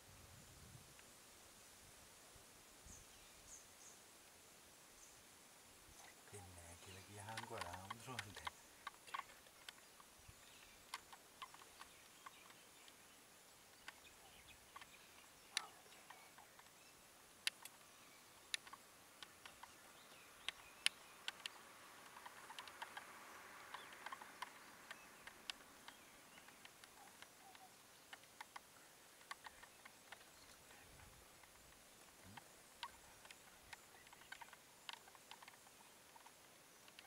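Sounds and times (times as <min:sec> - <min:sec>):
faint hiss: 0:00.0 - 0:37.0
sharp clicks and ticks: 0:06.4 - 0:10.1, 0:10.8 - 0:13.0, 0:17.4 - 0:17.8, 0:18.5 - 0:19.8, 0:20.4 - 0:30.7, 0:31.4 - 0:37.0.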